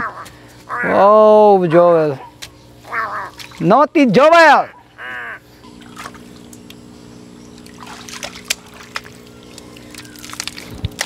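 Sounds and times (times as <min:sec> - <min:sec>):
wet mud squelching: 0:02.9 - 0:03.7, 0:07.6 - 0:11.0
sharp wet slaps: 0:03.3 - 0:03.7, 0:07.6 - 0:11.0.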